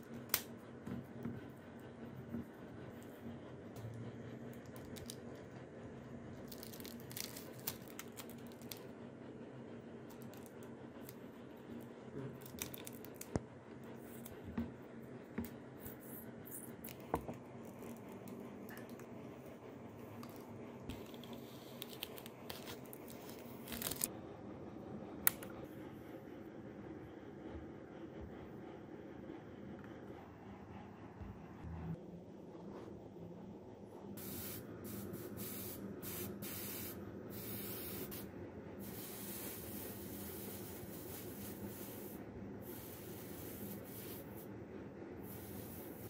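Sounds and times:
faint steady hum: 0.0s - 46.0s
tape crinkling and tearing: 6.5s - 8.8s, 21.7s - 24.1s.

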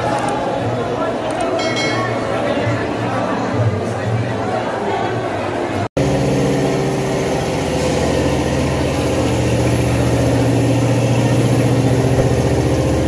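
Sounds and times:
engine idling: 6.0s - 13.0s.

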